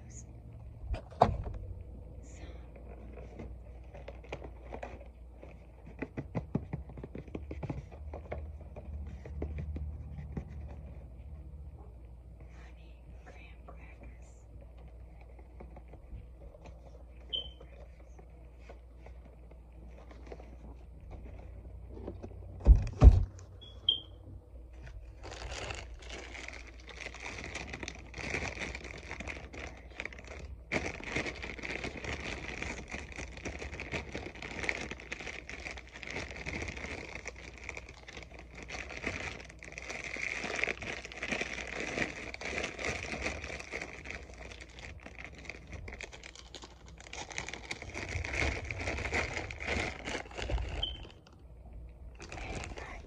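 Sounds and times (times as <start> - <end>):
plastic bag crinkling: 24.8 - 51.4, 52.1 - 53.0.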